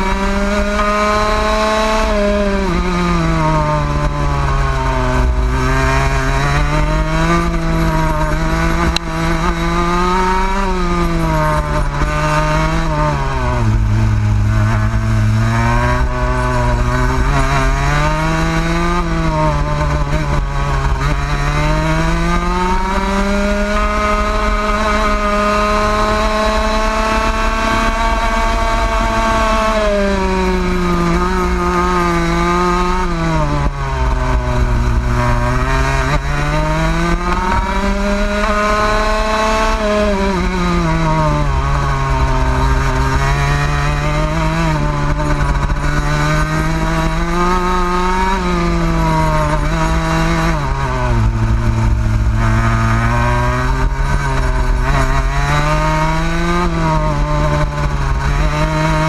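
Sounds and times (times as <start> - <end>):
kart engine revving: 0.0 - 59.0.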